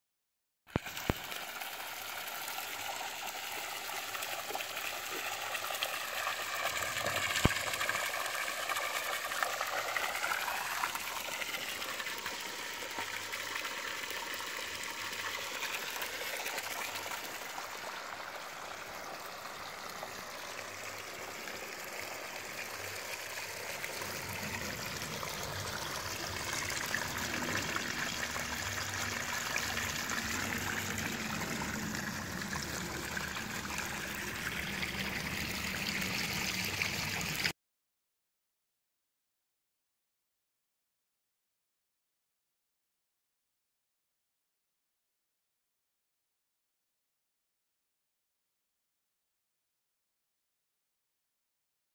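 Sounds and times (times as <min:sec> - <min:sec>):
water splashing into pond basin: 0:00.7 - 0:37.5.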